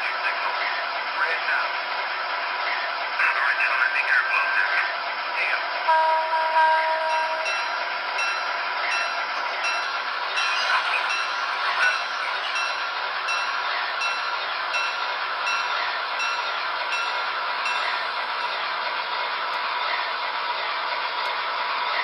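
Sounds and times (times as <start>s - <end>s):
model locomotive running sound: 0.0s - 22.0s
horn-like chord: 5.9s - 7.6s.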